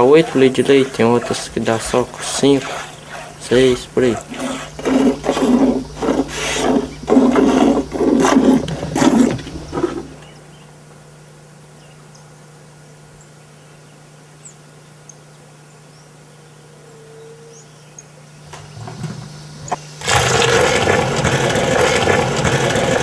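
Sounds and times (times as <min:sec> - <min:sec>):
faint steady hum: 0:00.0 - 0:22.7
milk squirting into metal bucket: 0:20.0 - 0:23.0.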